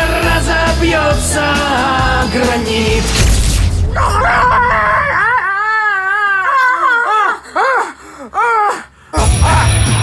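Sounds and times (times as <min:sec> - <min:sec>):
music: 0:00.0 - 0:03.8, 0:09.2 - 0:10.0
woman screaming: 0:04.0 - 0:07.4.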